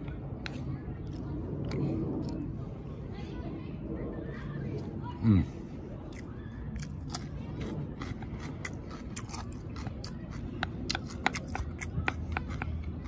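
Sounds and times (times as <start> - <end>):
person chewing crunchy vegetables: 6.0 - 13.0.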